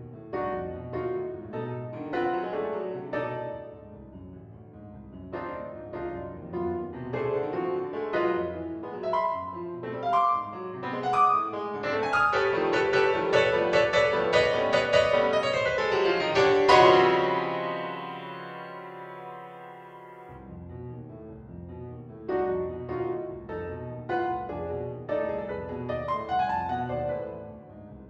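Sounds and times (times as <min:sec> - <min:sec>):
classical piano piece: 0:00.0 - 0:28.0.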